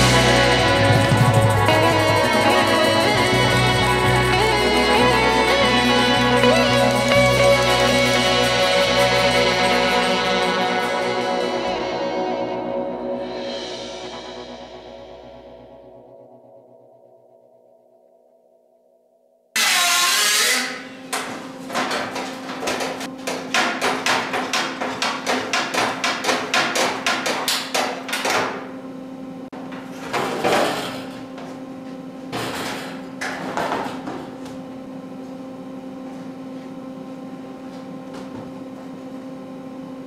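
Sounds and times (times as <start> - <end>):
steady electrical hum: 0.0 - 17.4, 19.6 - 40.0
hammer striking sheet metal: 19.6 - 28.6.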